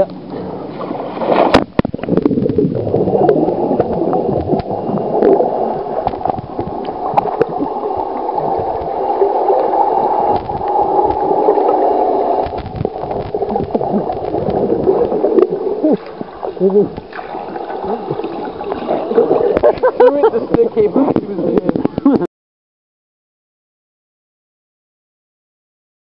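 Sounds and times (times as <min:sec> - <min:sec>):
muffled underwater rushing gurgle: 0:00.0 - 0:22.2
bubbles churning: 0:00.5 - 0:21.2
small clicks underwater: 0:03.8 - 0:05.4, 0:06.0 - 0:09.1, 0:10.3 - 0:11.8, 0:12.4 - 0:18.9.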